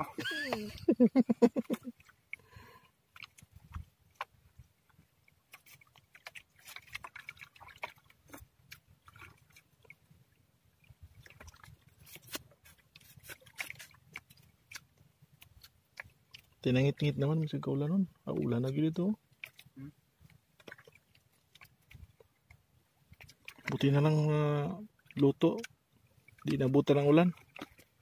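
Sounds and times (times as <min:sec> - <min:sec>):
chewing clicks and smacks: 0:13.3 - 0:16.5.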